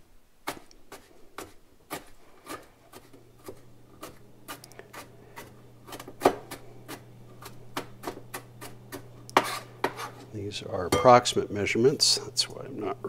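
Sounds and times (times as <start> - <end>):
knife chopping on cutting board: 0.4 - 10.3.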